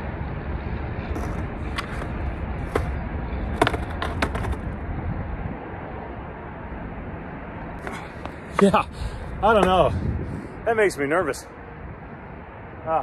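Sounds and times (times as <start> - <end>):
highway traffic noise: 0.0 - 13.0
skateboard clacks: 1.2 - 4.8.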